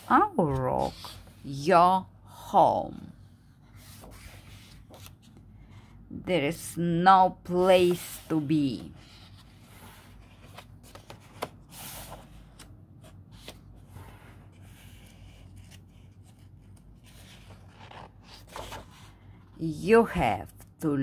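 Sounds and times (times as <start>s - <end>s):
hands rustling paper pages: 3.6s - 5.8s, 7.6s - 19.5s.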